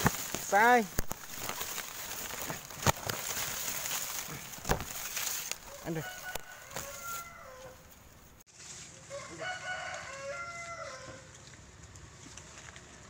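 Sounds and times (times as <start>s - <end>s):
rooster crowing: 5.6s - 8.0s, 9.1s - 11.3s.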